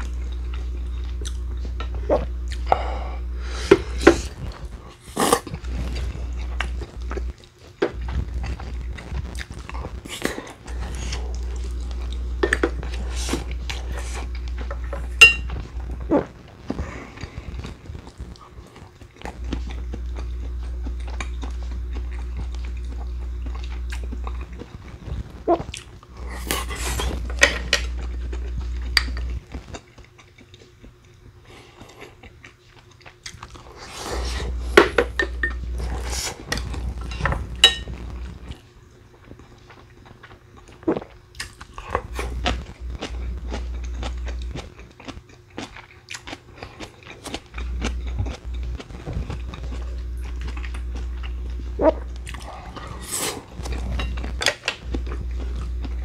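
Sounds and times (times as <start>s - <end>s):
person chewing and biting: 0.0s - 2.9s, 16.9s - 38.6s, 39.2s - 56.0s
low hum: 0.0s - 29.8s, 33.3s - 40.4s, 41.4s - 45.9s, 46.5s - 56.0s
utensils clinking against dishes: 15.2s - 15.5s, 37.1s - 37.9s.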